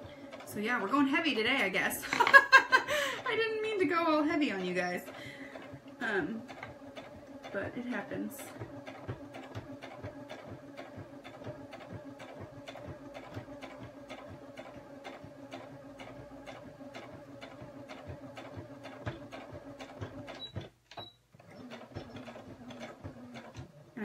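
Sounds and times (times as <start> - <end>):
sewing machine clicks: 0.0 - 24.0
sewing machine running: 0.0 - 24.0.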